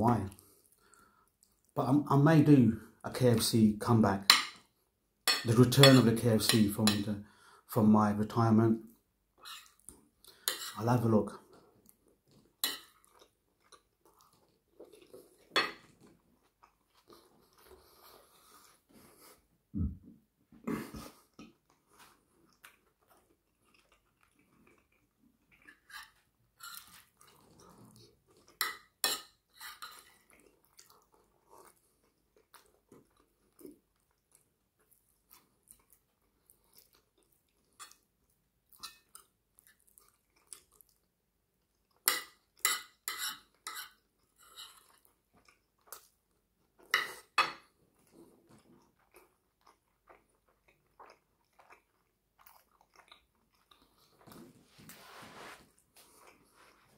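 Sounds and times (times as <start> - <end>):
soft chewing: 0.2 - 1.8, 8.8 - 10.8, 11.4 - 20.0, 20.6 - 56.9
metal spoon scraping a plate: 9.4 - 9.7, 10.4 - 10.8, 25.9 - 26.9, 42.6 - 44.8.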